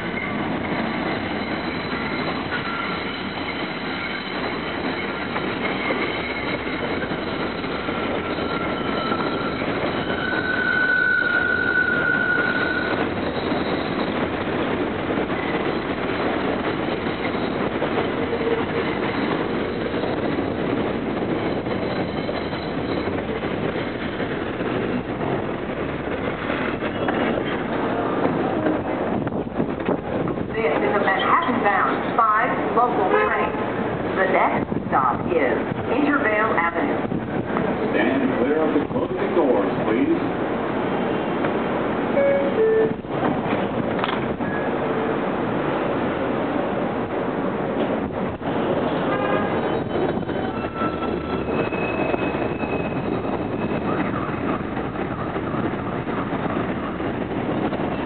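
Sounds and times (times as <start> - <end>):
rapid clicking over rails: 0.0 - 58.0
train wheel and track noise: 0.0 - 58.0
high steady squeal: 0.1 - 14.3.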